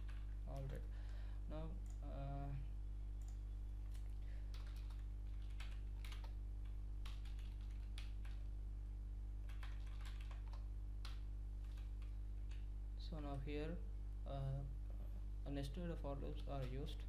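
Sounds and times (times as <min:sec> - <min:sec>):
computer keyboard typing: 0:00.0 - 0:00.9, 0:03.2 - 0:08.5, 0:09.5 - 0:12.7
low electrical hum: 0:00.0 - 0:17.0.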